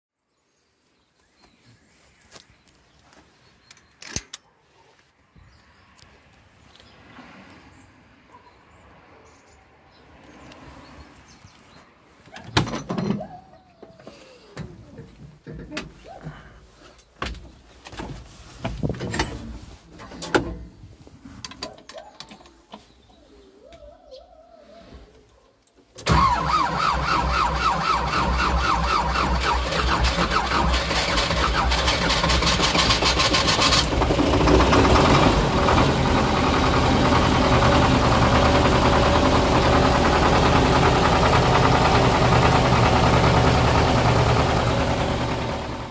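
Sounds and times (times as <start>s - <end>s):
faint outdoor background: 0.1s - 45.9s
tractor lever clunks and clicks: 3.7s - 4.5s.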